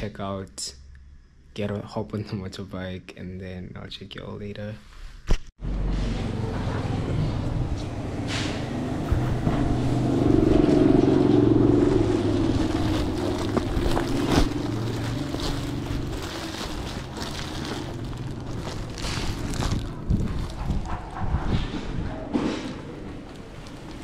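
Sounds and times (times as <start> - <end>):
motorbike engine running: 5.6 - 21.7
foil cover crinkling: 12.2 - 21.0.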